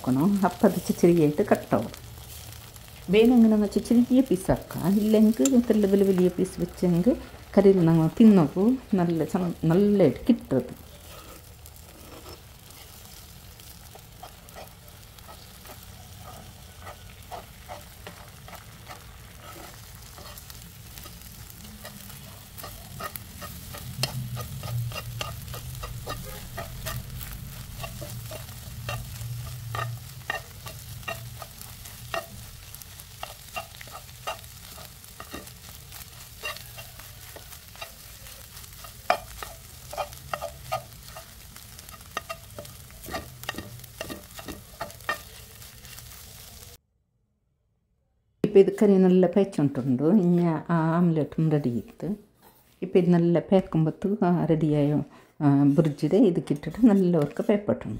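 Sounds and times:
eggs sizzling in a pan: 0.0 - 46.8
spoon scraping and tapping pan: 13.9 - 46.0, 55.8 - 57.7.

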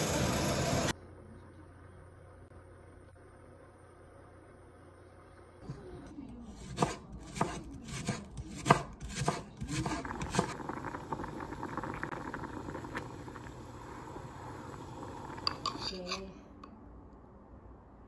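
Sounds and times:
pot boiling with hiss and pops: 0.0 - 16.2
knife chopping on wooden board: 6.6 - 10.5.

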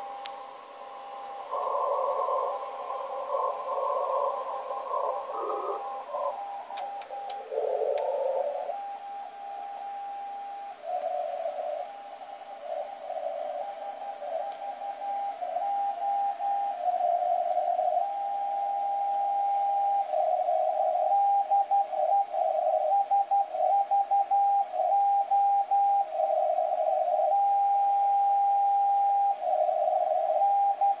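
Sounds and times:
radio band hiss: 0.0 - 31.0
morse code tone: 1.4 - 31.0.

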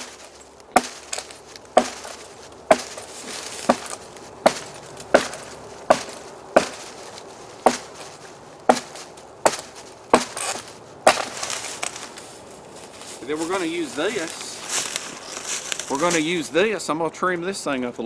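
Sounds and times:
blade chopping into branch: 0.0 - 12.0.

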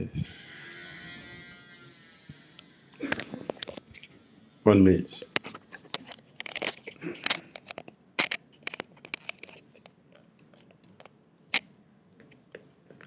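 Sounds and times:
rustling and crackling handling noise: 5.1 - 11.6.

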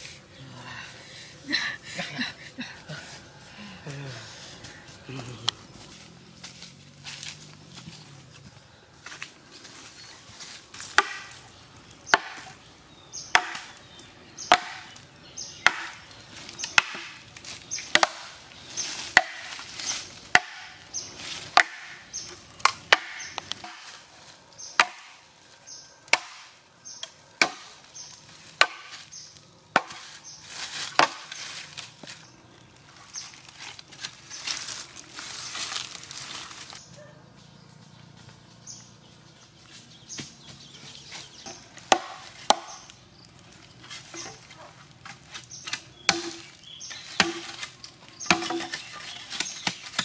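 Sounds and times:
machete chopping bamboo: 10.8 - 11.5, 12.1 - 12.6, 13.3 - 13.8, 14.4 - 15.0, 15.6 - 18.4, 19.0 - 20.9, 21.5 - 24.1, 24.7 - 25.3, 26.0 - 29.1, 29.7 - 32.1, 41.4 - 43.0, 44.1 - 50.0.

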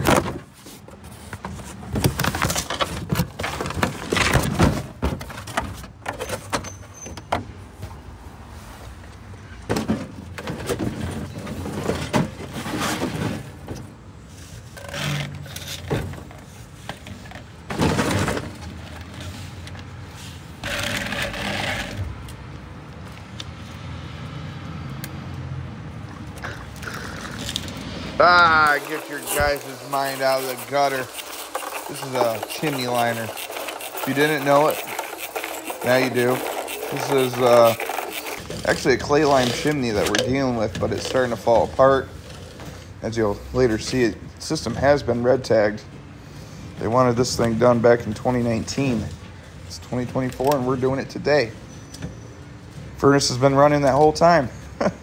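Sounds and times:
metal liner scraping and crinkling: 0.0 - 7.3, 8.5 - 22.3, 27.3 - 45.1.

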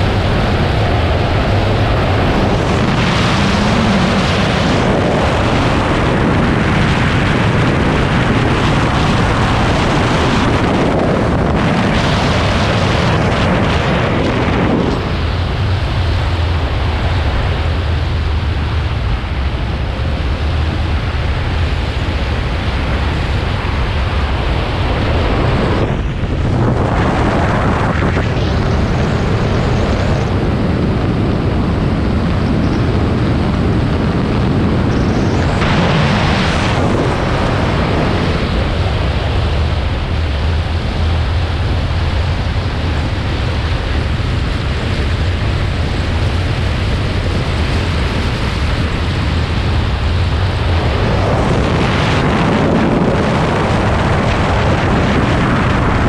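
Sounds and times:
wind rush on microphone: 0.0 - 56.0.

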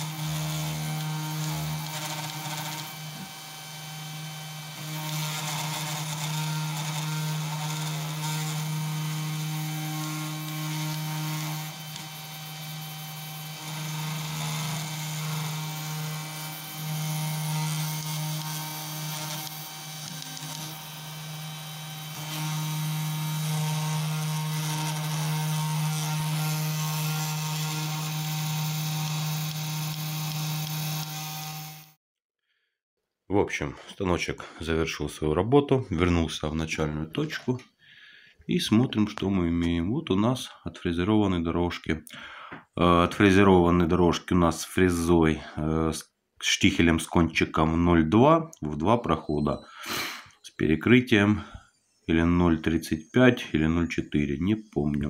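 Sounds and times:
router spindle motor humming: 0.0 - 32.0.

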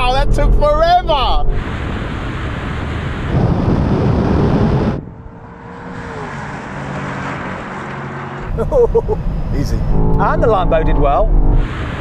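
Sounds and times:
car driving past: 1.5 - 8.6
cars accelerating hard: 1.5 - 12.0.

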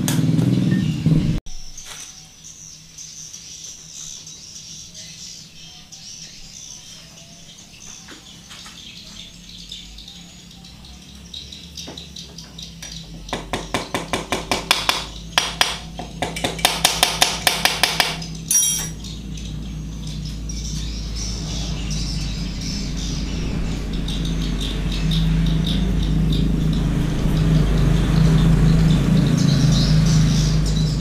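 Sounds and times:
hammer tapping metal drift: 11.9 - 19.2.

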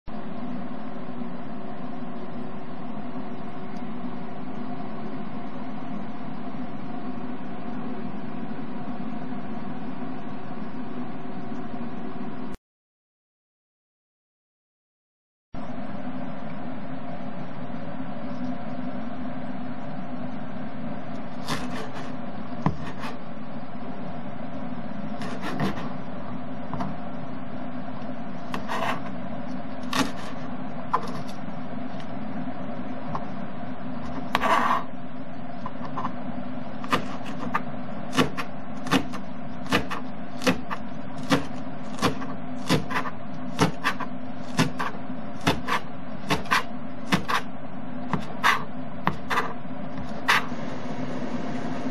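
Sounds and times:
steady hum: 0.1 - 12.6, 15.6 - 51.9
knife chopping on plastic board: 21.4 - 23.2, 25.2 - 25.9, 29.8 - 30.4, 36.8 - 47.5, 48.1 - 50.5.

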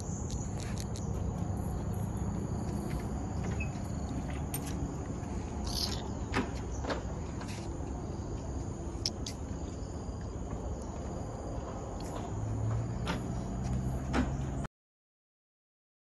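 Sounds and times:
sharp ticks: 0.0 - 1.4, 9.0 - 9.5
steady low rumble: 0.0 - 13.5
insects buzzing: 0.0 - 14.6
high bird call: 5.6 - 6.2.

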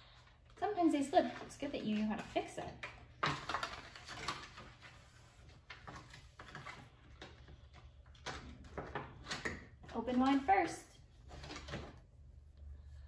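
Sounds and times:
paper rustling: 3.3 - 7.6.

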